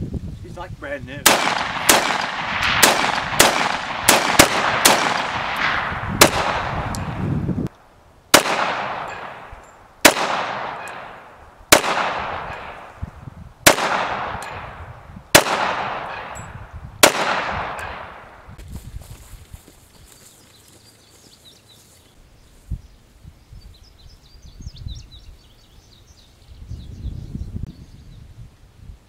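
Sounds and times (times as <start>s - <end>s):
rapid rifle gunfire: 1.2s - 7.0s, 8.4s - 9.4s, 10.0s - 12.8s, 13.7s - 14.7s, 15.4s - 16.4s, 17.0s - 18.2s
pistol shots echoing: 1.2s - 7.2s, 8.3s - 13.0s, 13.6s - 18.4s.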